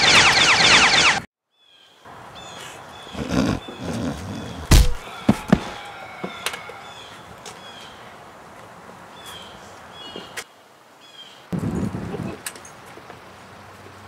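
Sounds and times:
outdoor background noise: 0.0s - 14.0s
small birds chirping: 1.5s - 5.2s, 6.3s - 8.2s, 9.0s - 11.5s
heavy thump: 4.7s - 5.7s
sharp knocks: 4.7s - 5.8s.

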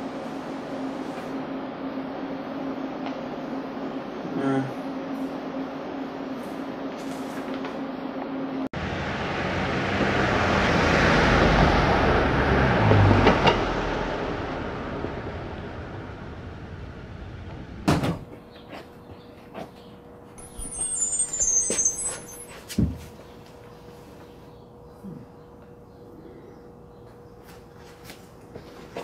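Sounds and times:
motor vehicle passing: 8.8s - 17.9s.

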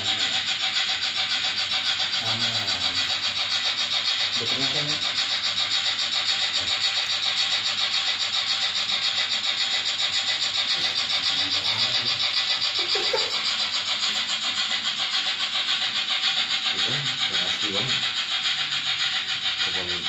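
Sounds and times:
model steam locomotive chuffing: 0.0s - 20.0s.

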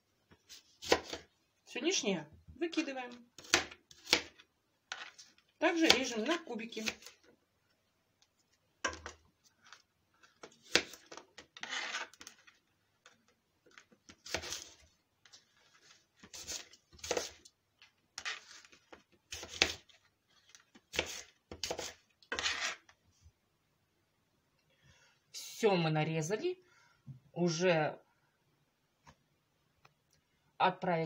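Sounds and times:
knife cutting apple on cutting board: 0.5s - 1.3s, 3.4s - 5.2s, 5.8s - 7.2s, 10.4s - 12.5s, 14.1s - 14.8s, 15.8s - 17.5s, 18.2s - 20.0s, 20.8s - 22.9s.

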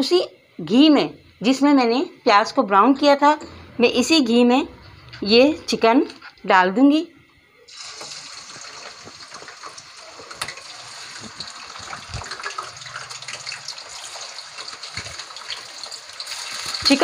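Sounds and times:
chicken sizzling in pan: 7.7s - 17.0s.

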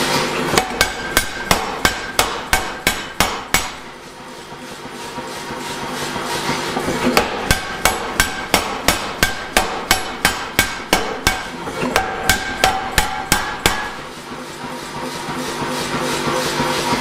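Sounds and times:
power hammer pounding steel: 0.0s - 17.0s.

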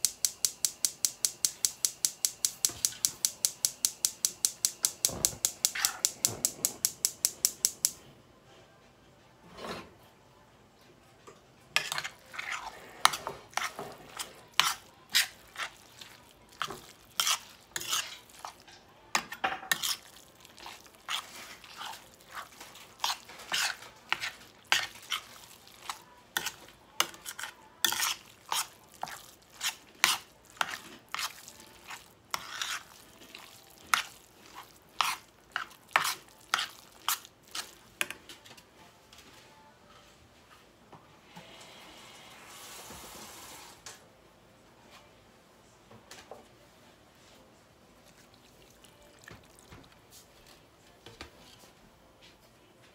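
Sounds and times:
metal spoon scraping a pan: 5.6s - 6.4s, 11.8s - 38.2s.

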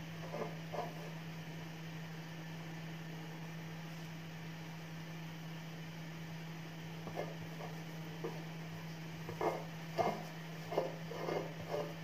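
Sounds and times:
steady low hum: 0.0s - 12.0s
dough rustling by hand: 6.9s - 12.0s.

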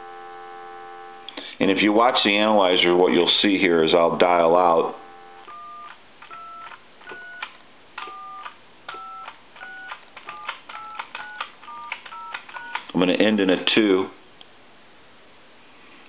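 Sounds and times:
telephone keypad beeps: 5.1s - 12.8s.

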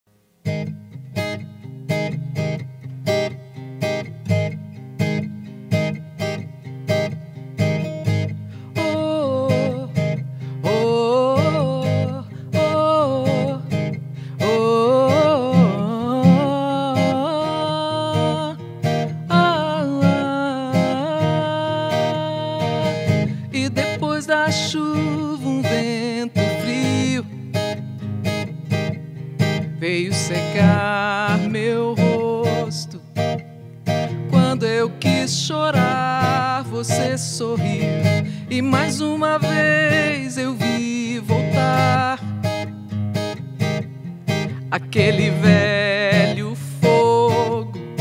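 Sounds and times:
fingerpicked acoustic guitar: 0.1s - 48.0s
woman singing: 8.7s - 27.4s, 29.8s - 33.1s, 34.3s - 42.5s, 44.6s - 47.8s.

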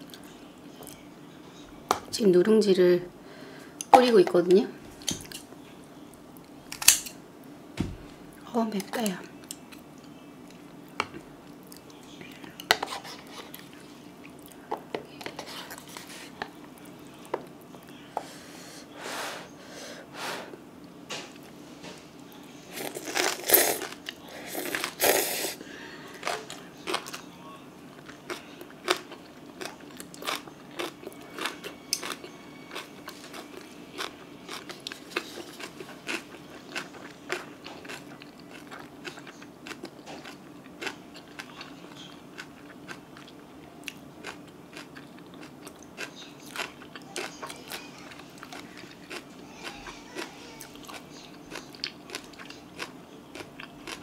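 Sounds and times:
chewing with small crunches: 8.9s - 18.0s, 26.2s - 27.3s, 27.9s - 54.0s.

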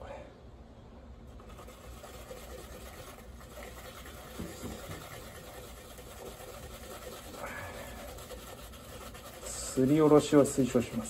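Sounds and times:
garlic scraping on a grater: 1.4s - 11.0s.

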